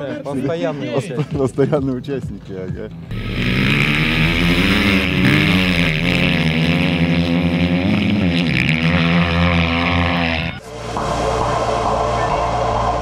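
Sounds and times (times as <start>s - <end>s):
dirt bike engine revving: 3.1s - 10.8s.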